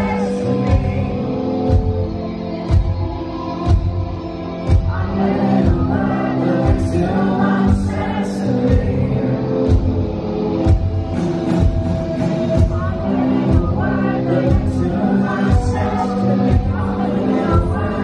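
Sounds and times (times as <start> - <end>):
man singing into a microphone: 4.9 - 9.7, 12.6 - 18.0.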